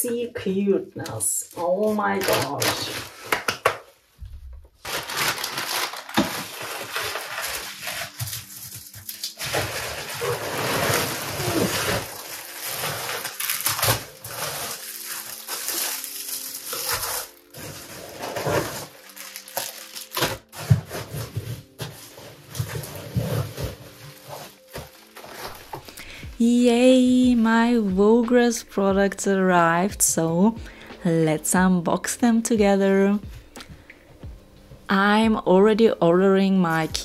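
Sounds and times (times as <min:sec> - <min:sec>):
plastic packaging crinkling: 0:01.4 - 0:03.5, 0:04.8 - 0:26.1.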